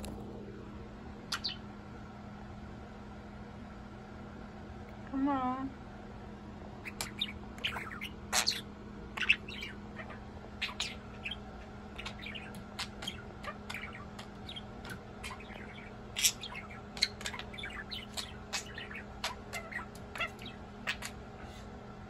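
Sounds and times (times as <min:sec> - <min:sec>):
budgerigars chirping: 0:01.3 - 0:01.6, 0:06.8 - 0:21.6.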